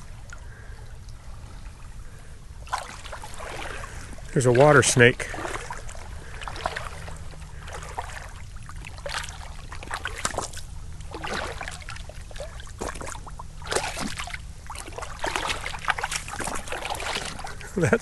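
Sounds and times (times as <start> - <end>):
small water splashes: 0.0 - 18.0
shallow water sloshing over cobbles: 1.7 - 18.0.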